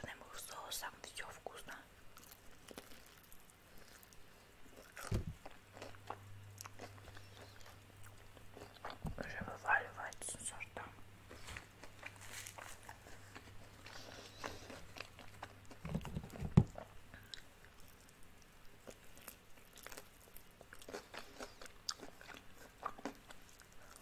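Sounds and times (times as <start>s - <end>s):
crunchy bites and chewing: 2.1s - 9.0s, 11.6s - 18.1s, 18.7s - 24.0s.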